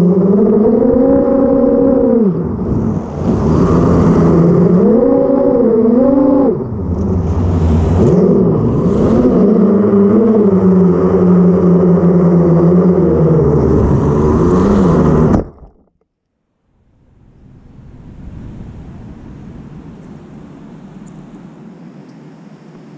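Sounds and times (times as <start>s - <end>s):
drone motors and propellers whining: 0.0s - 15.7s.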